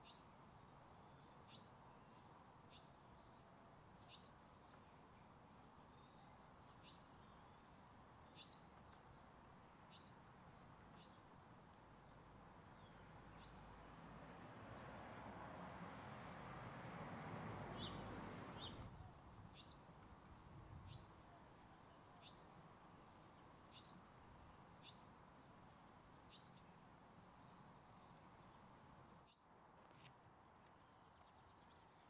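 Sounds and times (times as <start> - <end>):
bird chirping: 0.0 - 9.3, 9.9 - 10.2, 10.9 - 15.2, 17.7 - 19.9, 20.5 - 24.2, 24.8 - 29.5.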